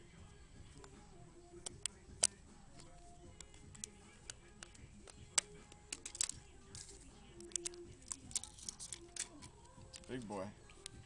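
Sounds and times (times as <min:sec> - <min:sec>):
plastic clicks and snaps: 0:01.6 - 0:11.0.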